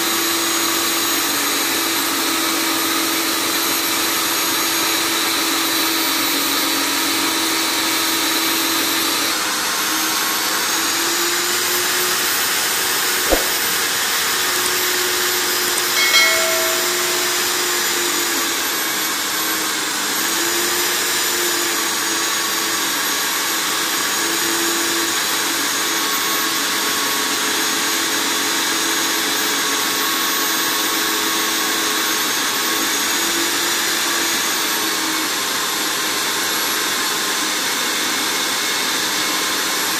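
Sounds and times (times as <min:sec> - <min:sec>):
sharp click: 0:13.3 - 0:13.8, 0:15.8 - 0:17.6.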